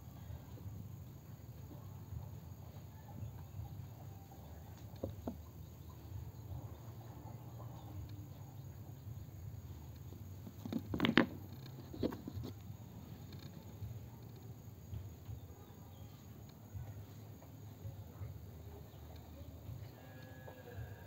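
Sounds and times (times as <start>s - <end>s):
low steady background noise: 0.0s - 21.0s
rustling: 10.1s - 14.5s.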